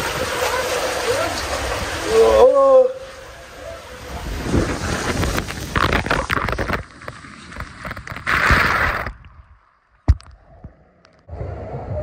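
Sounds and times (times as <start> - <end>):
water splashing and rushing: 0.0 - 10.4.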